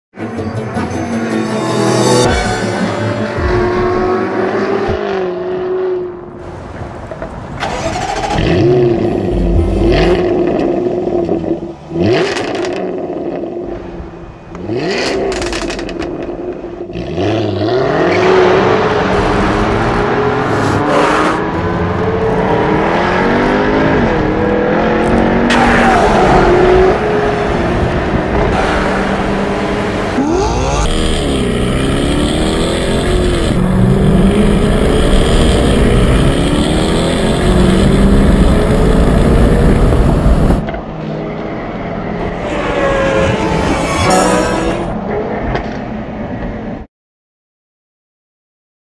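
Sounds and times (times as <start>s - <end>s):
car engine revving: 0.3s - 6.3s, 14.6s - 40.6s, 42.0s - 45.3s.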